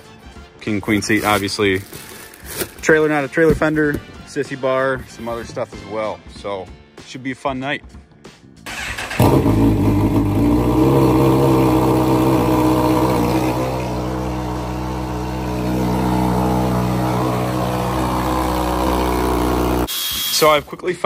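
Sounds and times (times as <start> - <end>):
motorcycle engine starting and idling: 8.7 - 19.9.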